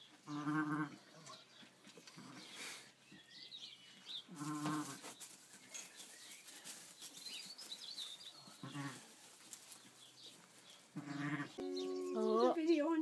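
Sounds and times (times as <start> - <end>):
sheep bleating: 8.6 - 9.0, 11.0 - 12.4.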